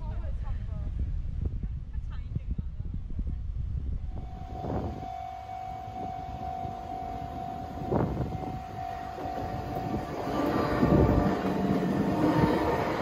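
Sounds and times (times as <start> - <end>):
train rumbling over crossing: 4.1 - 13.0
level-crossing warning bell: 4.2 - 13.0
passing traffic: 4.2 - 13.0.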